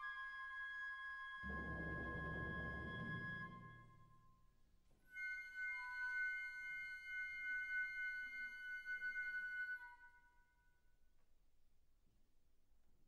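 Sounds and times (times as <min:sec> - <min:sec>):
wind orchestra playing softly: 0:00.2 - 0:04.1.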